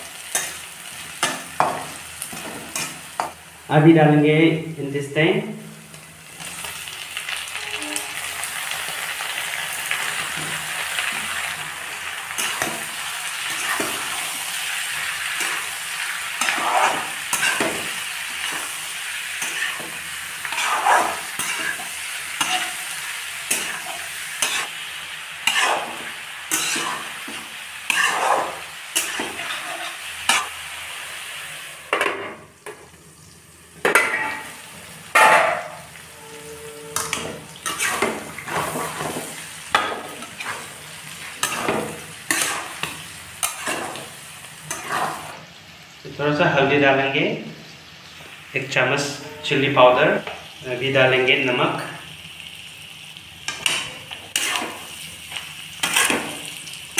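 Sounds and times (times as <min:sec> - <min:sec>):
intestine sizzling in hot oil: 0:00.0 - 0:56.9
metal spatula scraping a wok: 0:12.3 - 0:24.8, 0:25.4 - 0:30.6, 0:33.9 - 0:44.0, 0:44.6 - 0:45.4, 0:49.0 - 0:50.2, 0:53.5 - 0:54.9.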